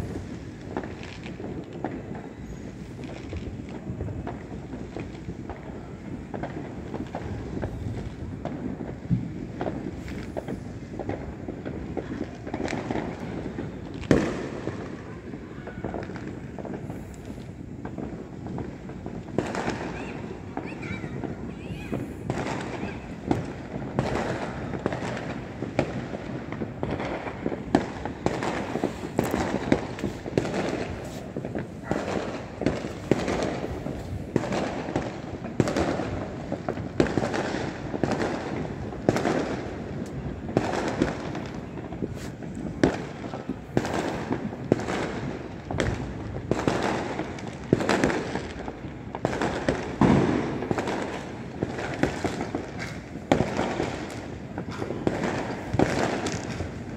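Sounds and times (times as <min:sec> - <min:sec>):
distant fireworks bangs and crackling: 0:00.0 - 0:56.9.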